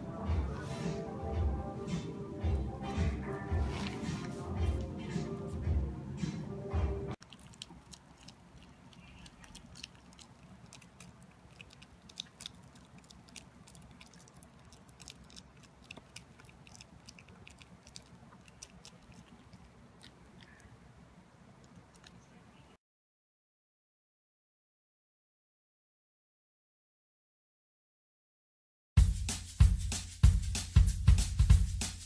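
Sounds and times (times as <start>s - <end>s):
dog chewing: 7.2s - 20.8s, 21.6s - 22.2s.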